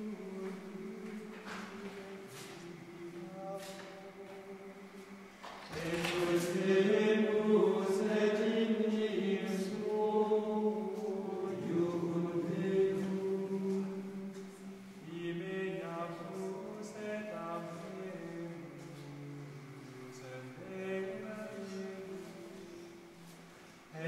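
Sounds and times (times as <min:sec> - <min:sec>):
men chanting in unison: 0:00.0 - 0:22.9.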